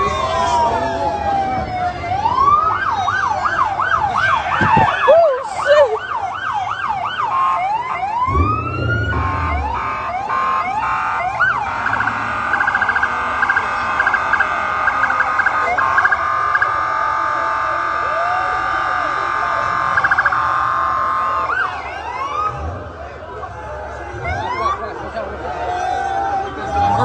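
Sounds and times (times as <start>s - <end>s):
police sirens yelping: 0.0s - 27.0s
stuttering high siren tones: 6.6s - 16.8s, 18.1s - 23.0s
low rumble: 8.2s - 10.6s.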